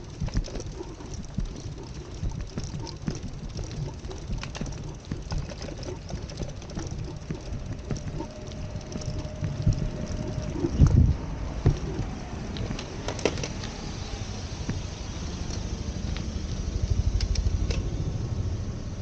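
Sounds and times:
faint steady tone: 0:00.0 - 0:12.8
low street rumble: 0:00.0 - 0:19.0.

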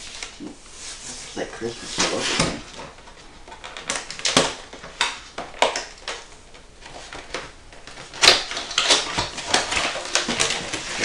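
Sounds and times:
cardboard boxes scraping and rustling: 0:00.8 - 0:02.8.

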